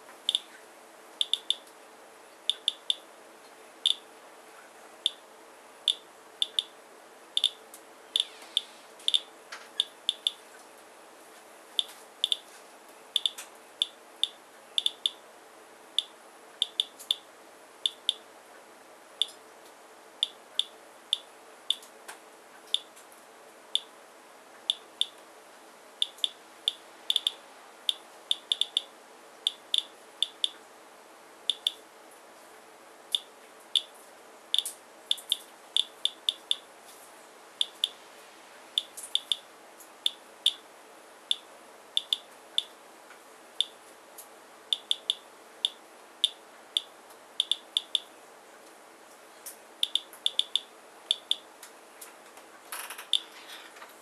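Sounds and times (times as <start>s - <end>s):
radiation counter clicking: 0.3s - 0.5s, 1.2s - 1.7s, 2.5s - 3.0s, 3.8s - 4.0s, 5.0s - 5.2s, 5.9s - 6.7s, 7.4s - 7.6s, 8.2s - 10.4s, 11.8s - 12.4s, 13.2s - 15.2s, 16.0s - 17.2s, 17.8s - 18.2s, 19.2s - 19.4s, 20.2s - 21.9s, 22.7s - 22.9s, 23.7s - 23.9s, 24.6s - 25.2s, 26.0s - 30.6s, 31.5s - 31.8s, 33.1s - 33.9s, 34.5s - 36.7s, 37.6s - 38.0s, 38.8s - 39.4s, 40.0s - 40.6s, 41.3s - 42.8s, 44.7s - 48.1s, 49.8s - 51.4s, 53.0s - 53.3s.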